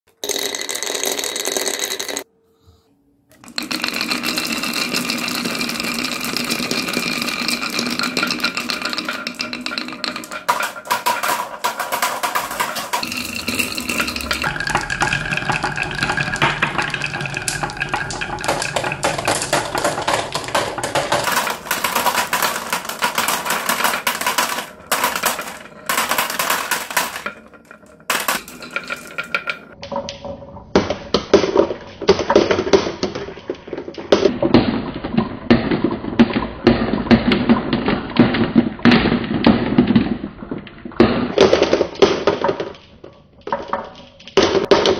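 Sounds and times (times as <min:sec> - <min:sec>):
marbles rattling down wooden run: 0:00.2 - 0:02.2, 0:03.4 - 0:29.8.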